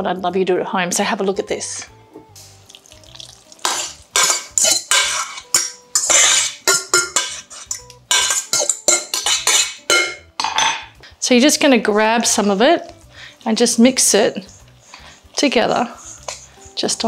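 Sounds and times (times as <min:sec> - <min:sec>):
spatula scraping metal bowl: 0:03.6 - 0:10.2, 0:14.9 - 0:16.6.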